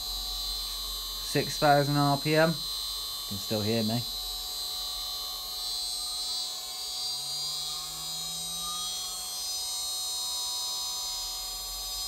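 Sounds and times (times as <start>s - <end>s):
spindle motor high whine: 0.0s - 12.0s
faint tone rising in pitch: 7.1s - 11.3s.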